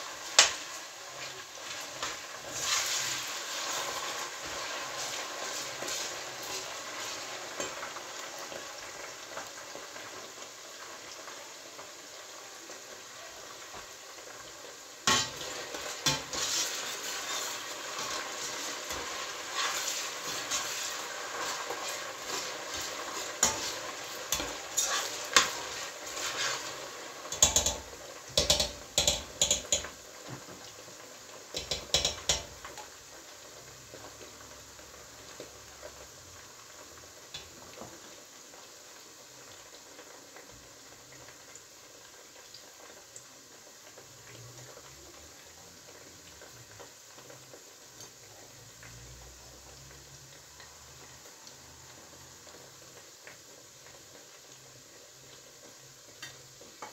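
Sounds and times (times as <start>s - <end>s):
onions sizzling in oil: 0.0s - 56.9s
metal spoon scraping pot: 22.8s - 25.6s.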